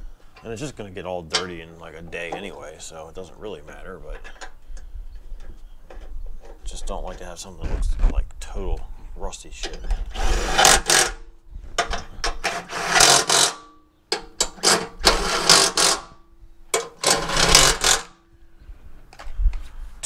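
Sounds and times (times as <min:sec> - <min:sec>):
impact wrench hammering: 0:11.8 - 0:18.1.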